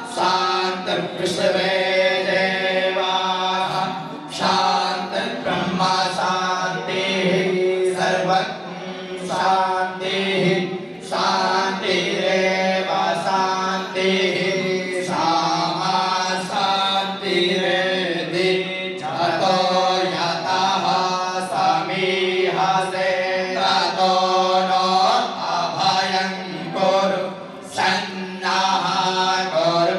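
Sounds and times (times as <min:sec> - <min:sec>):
mantra chanting: 0:00.0 - 0:29.9.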